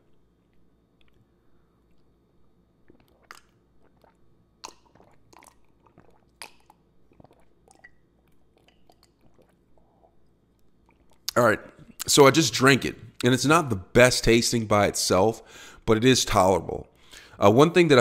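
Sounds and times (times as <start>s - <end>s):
person swallowing gulps: 0.0s - 12.1s
wet mouth clicks: 0.1s - 2.2s, 2.8s - 12.1s.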